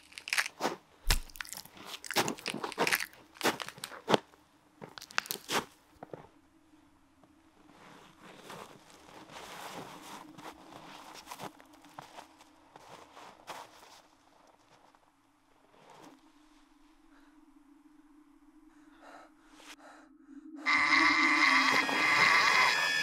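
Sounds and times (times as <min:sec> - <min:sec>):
footsteps crunching on dry leaves: 0:00.0 - 0:04.2.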